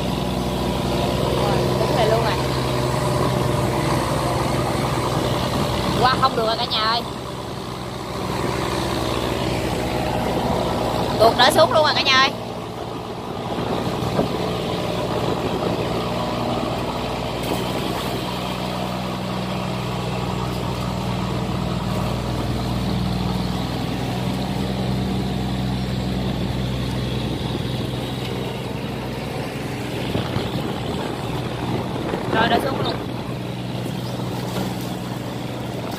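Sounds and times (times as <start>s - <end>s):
diesel engine running under load: 0.0s - 35.9s.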